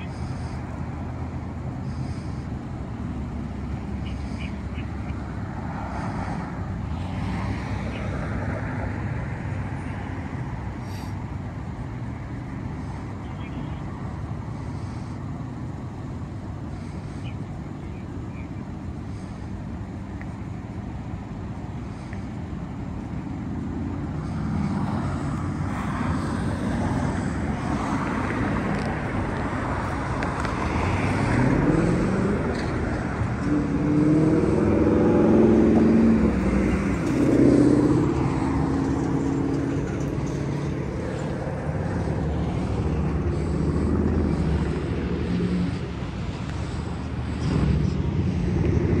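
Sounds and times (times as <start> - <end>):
cars driving by: 0.0 - 49.0
vehicle engine accelerating: 23.8 - 49.0.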